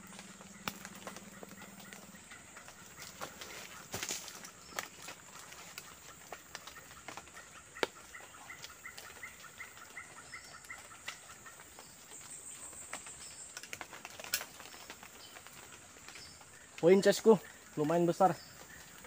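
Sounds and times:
bamboo pole clicks and snaps: 0:07.8 - 0:08.0.

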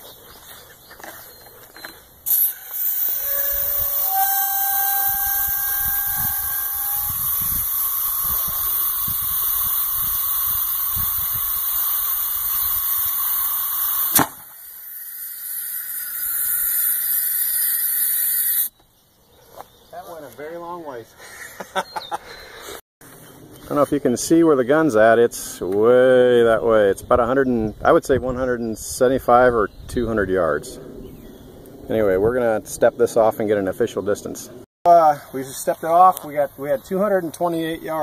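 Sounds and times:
compressed air hissing: 0:02.2 - 0:18.7
brief squealing tones: 0:02.3 - 0:08.5
air cannon firing crack: 0:14.0 - 0:14.6.

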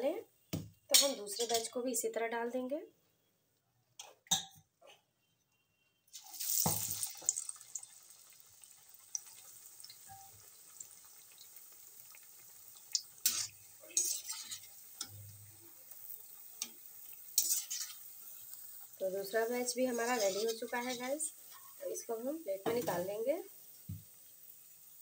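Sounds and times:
oil sizzling loudly: 0:06.1 - 0:25.0.

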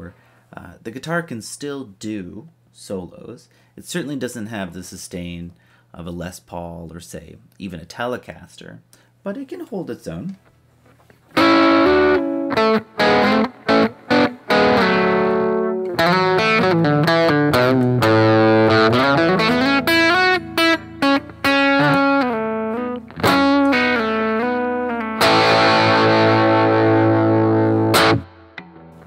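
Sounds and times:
overdriven electric guitar solo: 0:11.3 - 0:29.0.

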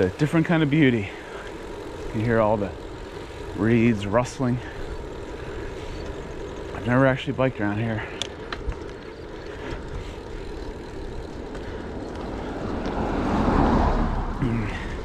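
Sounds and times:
steady low rumble: 0:00.1 - 0:15.0
passing vehicle engine: 0:09.3 - 0:15.0.

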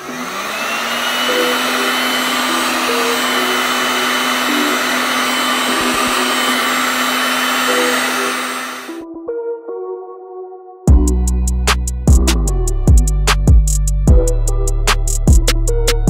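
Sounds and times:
heat gun blowing air: 0:00.0 - 0:09.0.

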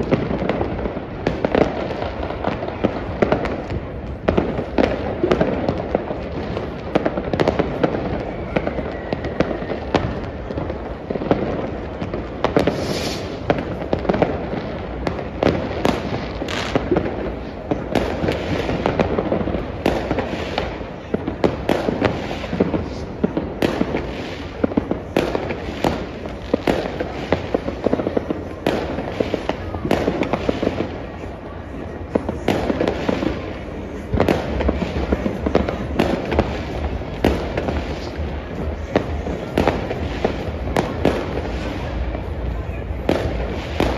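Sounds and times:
fireworks and firecrackers crackling: 0:00.0 - 0:43.9
falling firework whistle: 0:07.6 - 0:10.6, 0:12.4 - 0:13.6.

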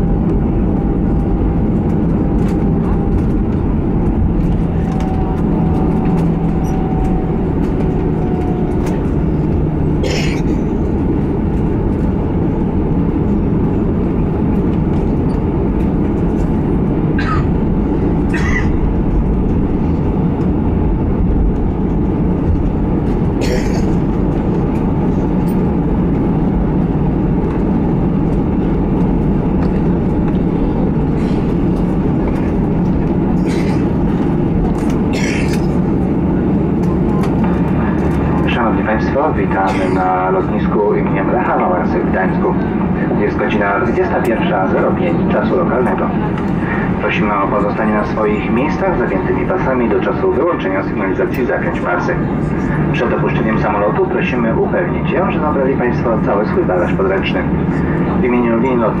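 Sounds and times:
airplane cabin engine rumble: 0:00.0 - 0:59.0.

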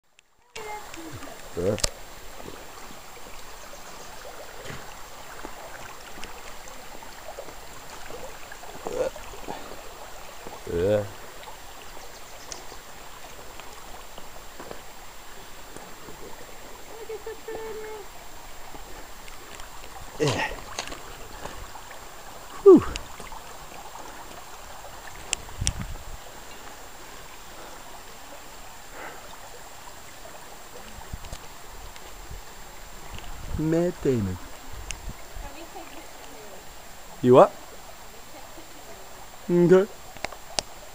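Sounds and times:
creek water running over pebbles: 0:00.1 - 0:40.9.

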